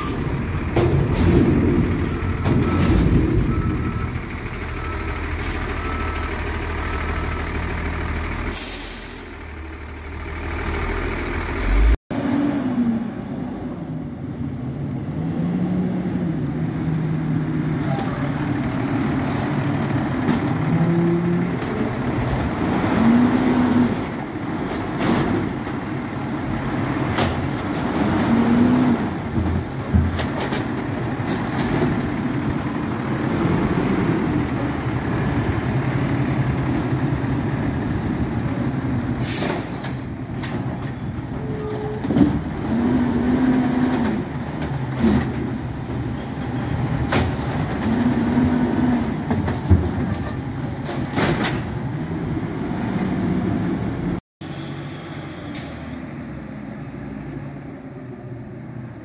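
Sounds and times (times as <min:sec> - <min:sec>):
garbage truck engine and hydraulics: 0:00.0 - 0:59.0
metal clanks and knocks: 0:00.1 - 0:04.0.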